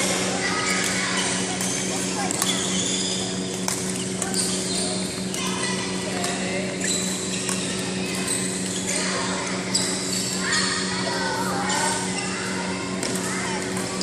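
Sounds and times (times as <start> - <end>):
children's voices: 0.0 - 2.6, 5.4 - 6.6, 8.8 - 14.0
steady low hum: 0.0 - 14.0
rackets striking shuttlecocks: 0.8 - 8.7, 13.0 - 14.0.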